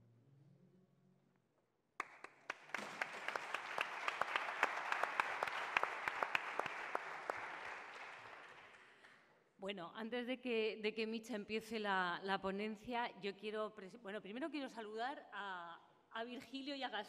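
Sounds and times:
audience applause: 0:02.0 - 0:09.2.

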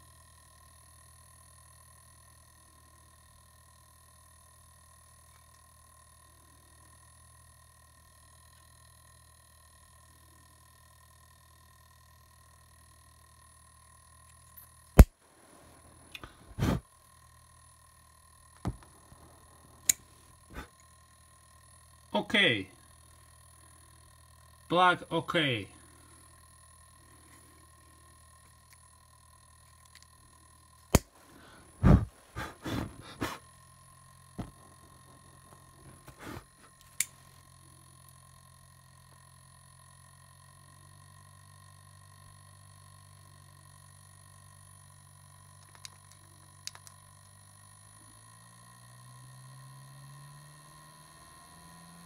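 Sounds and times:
low hum: 0:00.0 - 0:52.0
lighter flint wheel clicking: 0:36.8 - 0:37.2, 0:45.5 - 0:47.4.

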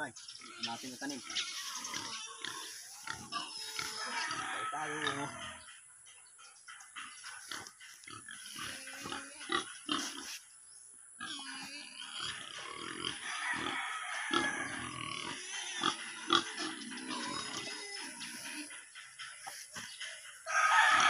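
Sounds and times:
farm animal calling: 0:00.0 - 0:21.0.

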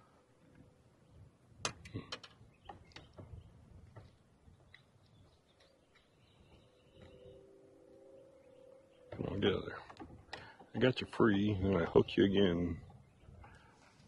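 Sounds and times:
faint ticks and knocks of fish handling: 0:01.6 - 0:07.2, 0:09.0 - 0:12.1.

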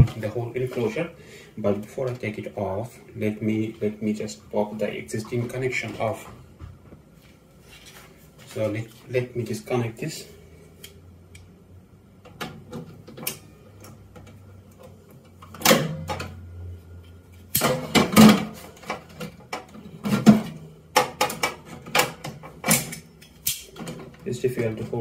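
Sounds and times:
pliers clicking and scraping on metal: 0:22.7 - 0:23.8.

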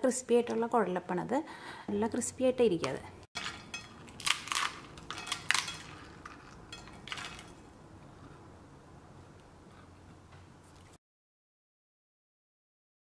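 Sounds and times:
crispy fried roll cracking: 0:03.4 - 0:07.6.

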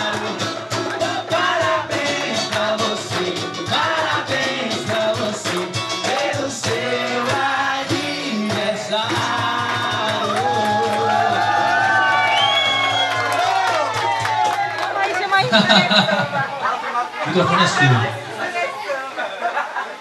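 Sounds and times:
song with sung vocals over beat: 0:00.0 - 0:11.7.

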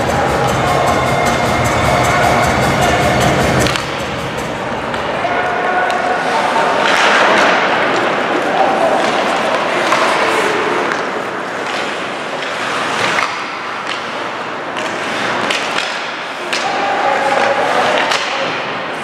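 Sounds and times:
skates scraping on ice: 0:06.0 - 0:19.0
hockey sticks and puck knocking: 0:06.8 - 0:18.8.

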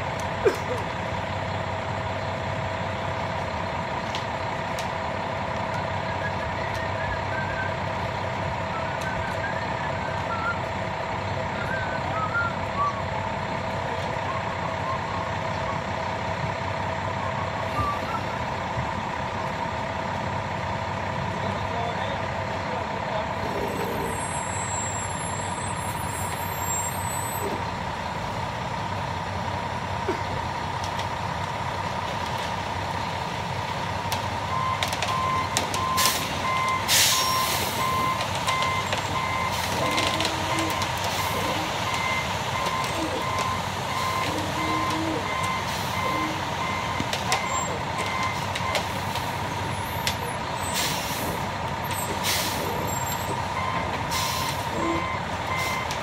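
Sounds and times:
concrete mixer truck running: 0:00.0 - 0:56.0.

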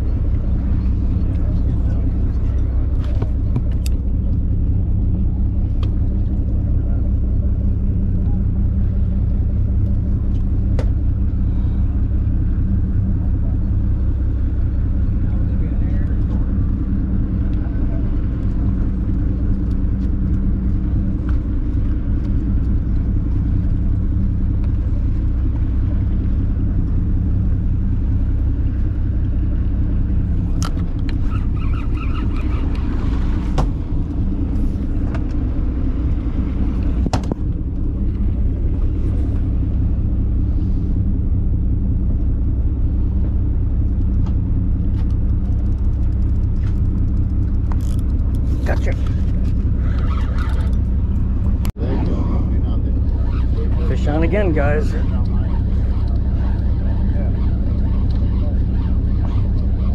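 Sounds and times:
boat engine rumbling: 0:00.0 - 0:59.9.

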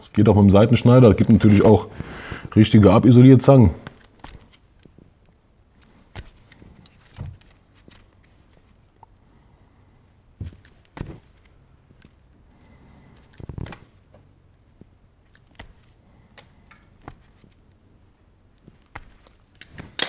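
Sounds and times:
handling rustle: 0:03.8 - 0:08.9.

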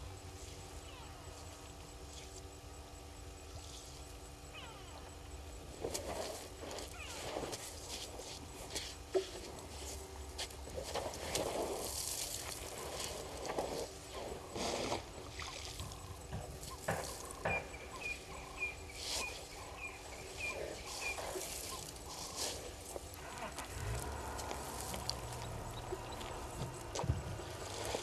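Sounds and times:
low steady hum: 0:00.0 - 0:28.0
elephants scuffing dry dirt: 0:05.7 - 0:15.2, 0:15.8 - 0:28.0
dust spraying: 0:16.6 - 0:28.0.

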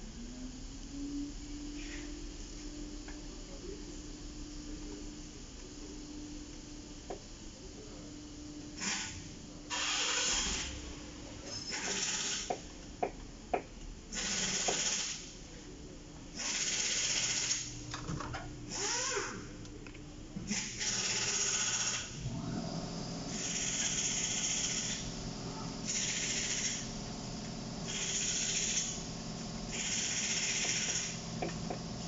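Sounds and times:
harsh mechanical tool bursts: 0:08.8 - 0:10.8, 0:11.7 - 0:12.5, 0:14.1 - 0:15.3, 0:20.5 - 0:22.2, 0:25.9 - 0:26.9, 0:29.7 - 0:31.2.

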